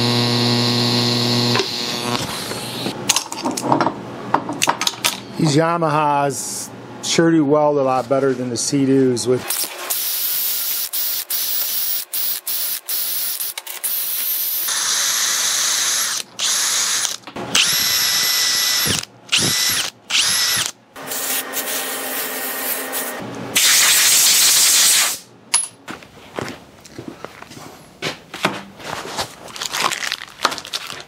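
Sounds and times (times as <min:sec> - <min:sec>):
drill spinning wire brush on metal: 0:00.0 - 0:02.9, 0:09.5 - 0:23.2.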